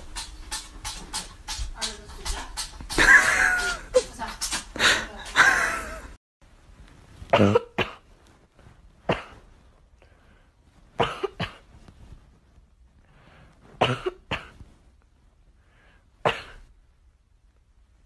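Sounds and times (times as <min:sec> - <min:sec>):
person coughing: 0:07.3 - 0:08.1, 0:09.1 - 0:09.5, 0:11.0 - 0:11.7, 0:13.8 - 0:14.6, 0:16.3 - 0:16.7.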